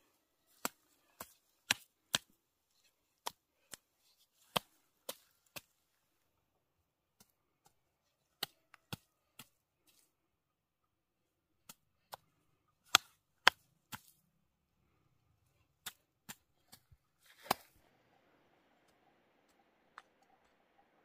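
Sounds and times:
hoe chopping into dry soil: 15.8s - 17.8s.

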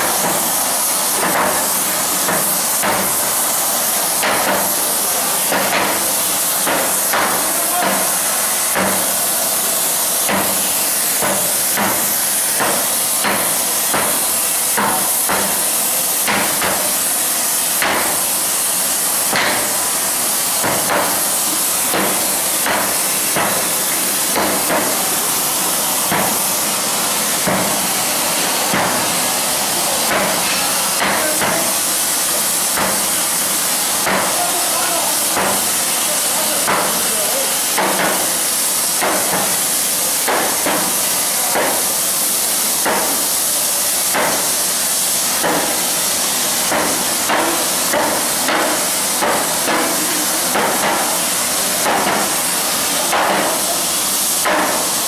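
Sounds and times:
gas torch hissing: 0.0s - 55.0s
sledgehammers striking hot steel: 14.8s - 15.6s, 17.7s - 18.2s, 19.3s - 19.8s, 21.9s - 23.6s, 35.3s - 35.7s, 45.4s - 45.8s, 46.7s - 51.2s, 51.8s - 52.3s, 53.1s - 53.6s, 54.4s - 54.9s.

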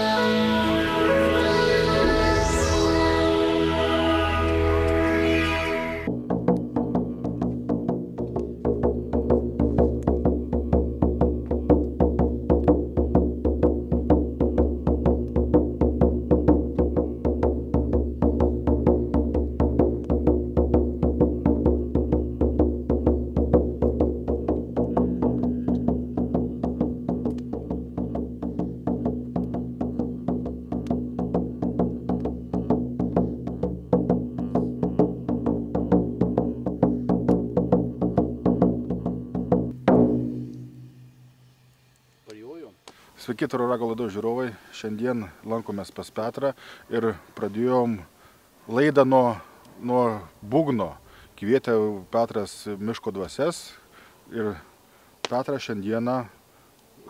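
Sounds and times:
frame drum beating: 6.0s - 41.3s.

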